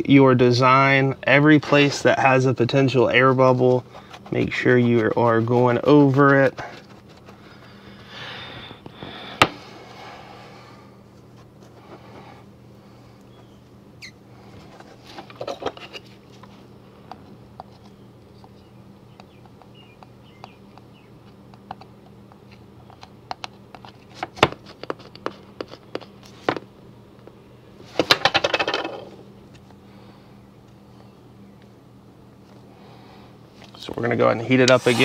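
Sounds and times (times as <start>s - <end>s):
faint low hum: 0.0s - 35.0s
rapid crackling of handled disc: 2.8s - 7.8s, 14.5s - 27.4s
hands rubbing tape on plastic: 3.1s - 8.0s, 34.6s - 35.0s.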